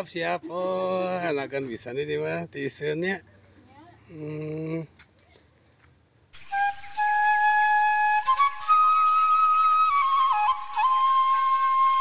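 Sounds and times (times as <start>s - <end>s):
flute playing slow melody: 6.4s - 12.0s.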